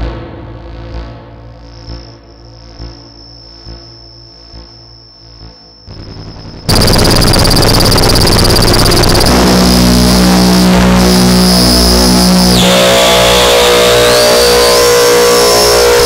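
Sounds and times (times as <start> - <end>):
synth drone with overtones: 2.5 - 16.0
high steady synth tone: 2.9 - 16.0
noisy electronic synth texture: 5.9 - 16.0.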